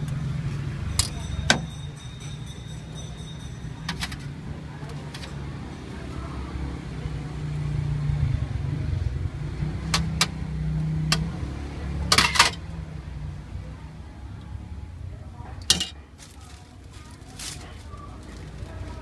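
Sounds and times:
vehicle engine rumble: 0:00.0 - 0:19.0
utensils clinking on metal bowls: 0:00.8 - 0:05.4, 0:12.1 - 0:12.6, 0:15.6 - 0:18.3.

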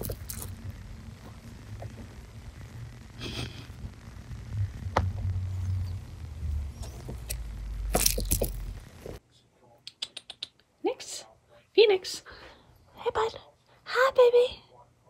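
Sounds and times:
low rumble: 0:00.0 - 0:09.2.

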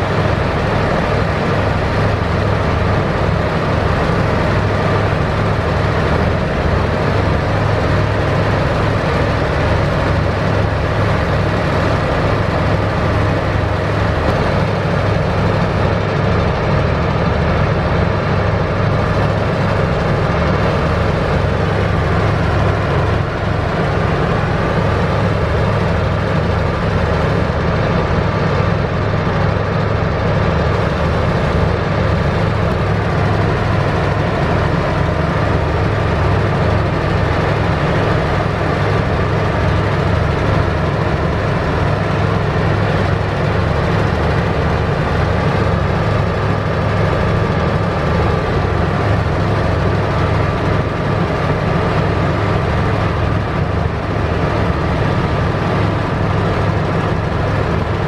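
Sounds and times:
heavy diesel engine droning: 0:00.0 - 0:58.0.

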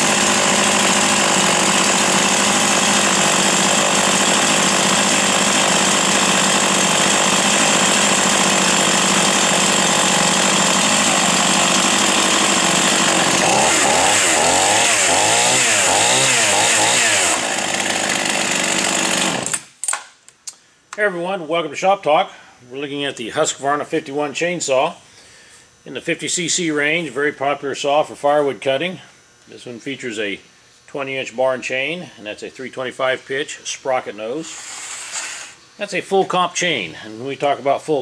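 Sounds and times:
chainsaw engine idling: 0:00.0 - 0:19.7.

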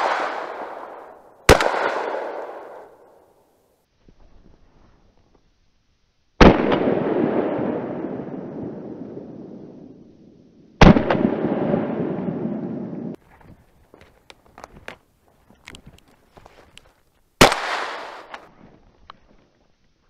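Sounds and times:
shotgun shots echoing: 0:00.0 - 0:03.2, 0:10.8 - 0:13.2, 0:17.4 - 0:18.4.

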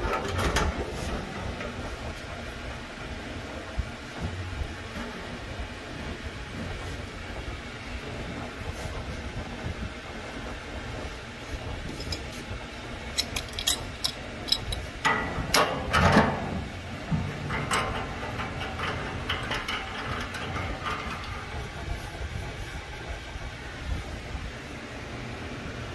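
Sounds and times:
metal clatter and scrape: 0:00.0 - 0:02.3, 0:11.6 - 0:23.5
steady low hum: 0:00.0 - 0:25.9
small metallic clicks: 0:13.1 - 0:16.2.

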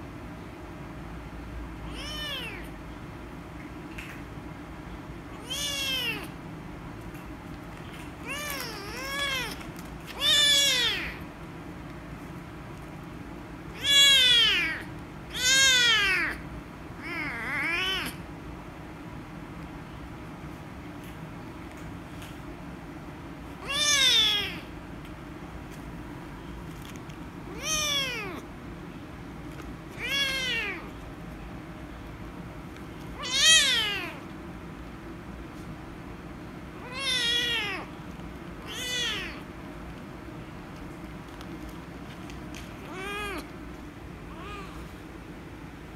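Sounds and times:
kitten meowing: 0:01.9 - 0:02.7, 0:05.4 - 0:06.4, 0:08.2 - 0:09.6, 0:10.2 - 0:11.2, 0:13.7 - 0:16.4, 0:17.0 - 0:18.2, 0:23.6 - 0:24.7, 0:27.5 - 0:28.4, 0:29.9 - 0:31.0, 0:33.2 - 0:34.2, 0:36.8 - 0:37.9, 0:38.6 - 0:39.4, 0:42.8 - 0:43.5, 0:44.3 - 0:44.8.

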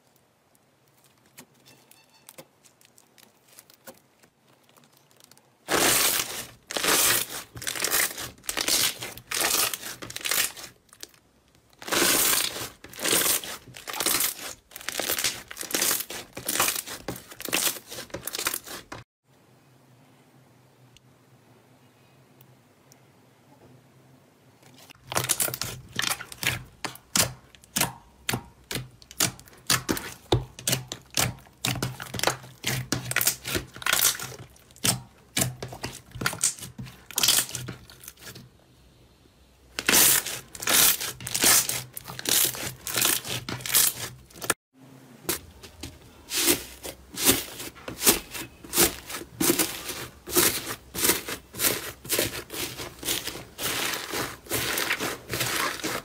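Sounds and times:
hands squishing sticky slime: 0:02.7 - 0:11.2, 0:11.8 - 0:19.0, 0:25.0 - 0:38.4, 0:39.8 - 0:44.6, 0:45.3 - 0:56.0.

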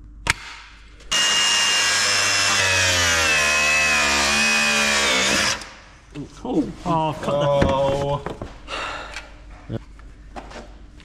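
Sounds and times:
angle grinder cutting bolt: 0:01.1 - 0:05.8.

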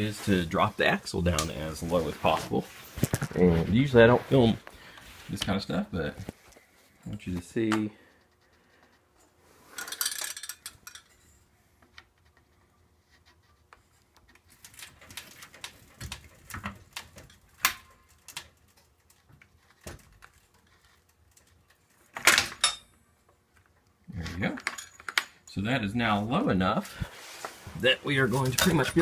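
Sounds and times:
rustling: 0:00.0 - 0:09.9, 0:26.8 - 0:29.0
metallic clinks and knocks: 0:09.8 - 0:11.3, 0:24.6 - 0:25.6.

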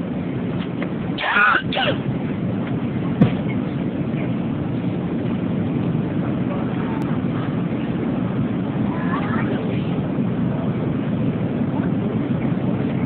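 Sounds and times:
airliner cabin engine rush: 0:00.0 - 0:13.0
faint voices: 0:02.8 - 0:13.0.

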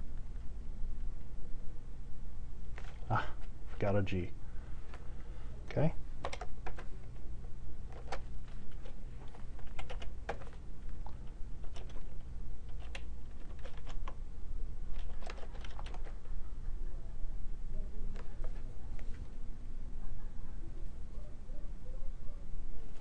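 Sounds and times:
typing on keyboard: 0:06.2 - 0:07.0, 0:07.9 - 0:14.2, 0:14.9 - 0:16.3.

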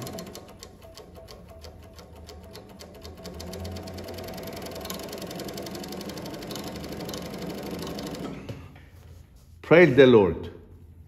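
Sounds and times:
sewing machine stitching: 0:00.0 - 0:08.6.

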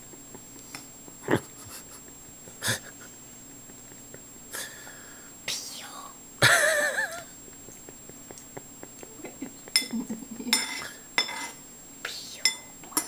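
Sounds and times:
spoon clinking against dish: 0:09.7 - 0:11.6, 0:12.4 - 0:13.0.

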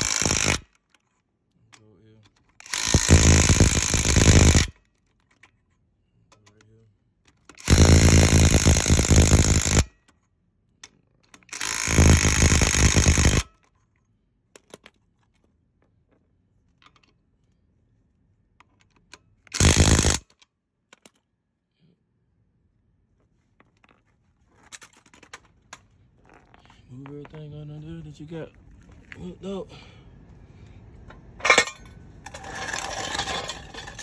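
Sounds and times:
impact wrench hammering: 0:00.0 - 0:00.6, 0:02.7 - 0:04.7, 0:07.6 - 0:09.8, 0:19.6 - 0:20.2.

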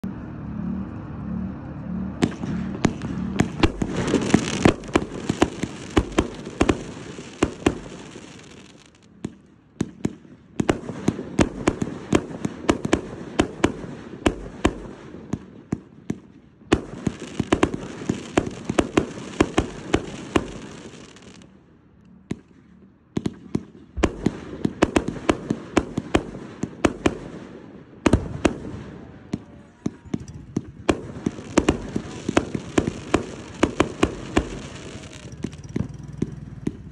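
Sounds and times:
firework launches and bangs: 0:02.2 - 0:15.5, 0:16.1 - 0:21.4, 0:23.2 - 0:28.8, 0:30.7 - 0:36.8
crackling hiss: 0:02.3 - 0:15.4, 0:16.7 - 0:21.6, 0:31.0 - 0:36.9.

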